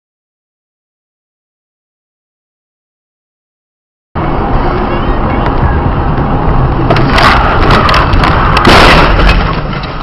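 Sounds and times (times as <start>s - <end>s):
road rumble: 4.2s - 10.0s
car crash bangs and crunching: 6.9s - 10.0s.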